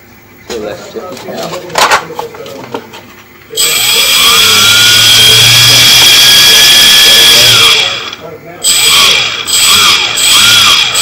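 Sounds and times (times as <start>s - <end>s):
electric motor whine: 3.5s - 11.0s.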